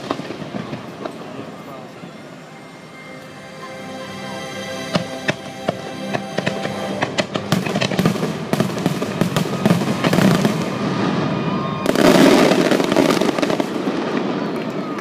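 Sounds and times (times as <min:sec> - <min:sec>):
fireworks bangs and crackling: 0:00.0 - 0:02.0, 0:05.0 - 0:15.0.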